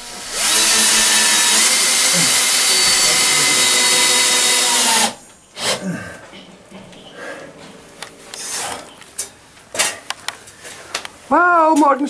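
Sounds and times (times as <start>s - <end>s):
cordless drill whining: 0.0s - 5.2s.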